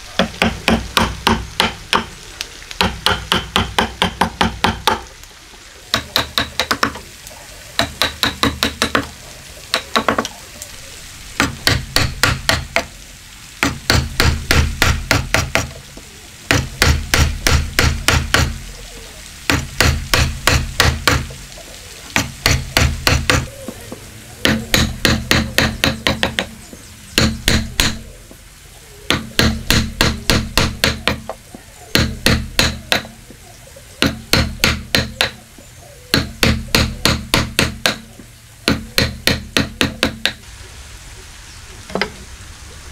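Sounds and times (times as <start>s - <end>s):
chisel blows chopping wood: 0.2s - 2.1s, 2.8s - 5.0s, 11.4s - 12.9s, 13.6s - 15.7s, 16.5s - 18.6s, 19.5s - 21.3s, 22.2s - 23.5s, 24.4s - 26.6s, 27.2s - 28.0s, 29.1s - 31.4s, 32.0s - 33.1s, 34.0s - 35.4s, 36.1s - 38.1s.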